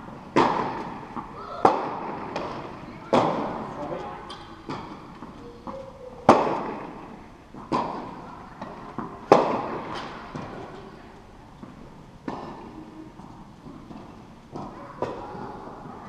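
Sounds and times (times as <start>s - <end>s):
tennis ball hits echoing: 0.2s - 10.8s, 11.6s - 12.8s, 13.6s - 16.0s
ball bounces: 0.3s - 10.8s, 11.6s - 12.8s.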